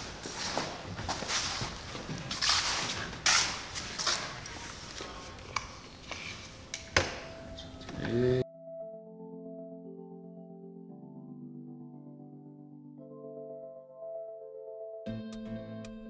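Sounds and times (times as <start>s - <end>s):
soft keyboard music: 0.0s - 16.0s.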